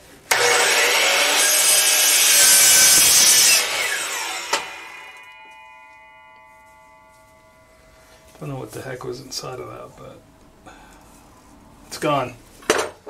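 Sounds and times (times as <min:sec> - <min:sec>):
miter saw cutting metal: 0:00.3 - 0:06.3
saw blade winding down: 0:00.3 - 0:07.6
ringing hum: 0:03.5 - 0:11.9.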